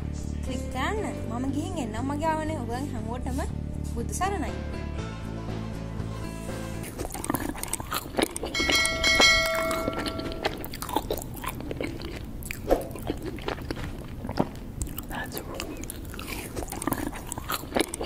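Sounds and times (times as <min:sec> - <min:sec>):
bell-like chime: 0:08.6 - 0:10.4.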